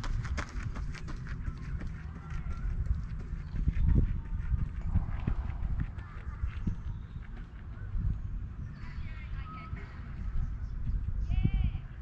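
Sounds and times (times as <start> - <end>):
low rumble: 1.7 - 8.5.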